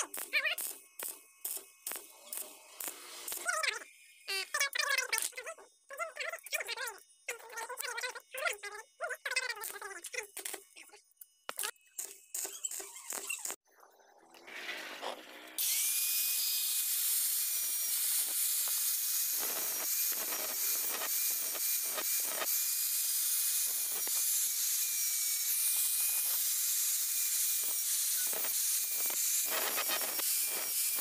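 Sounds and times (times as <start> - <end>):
angle grinder grinding steel: 0.0 - 5.4, 14.4 - 31.0.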